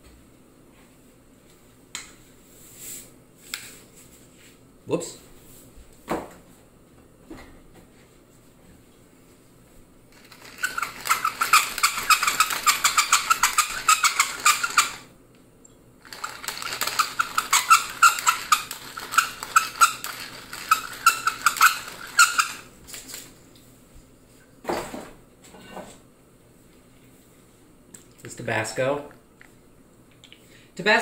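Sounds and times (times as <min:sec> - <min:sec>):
pepper mill grinding clicks: 0:10.2 - 0:15.0, 0:16.0 - 0:22.7.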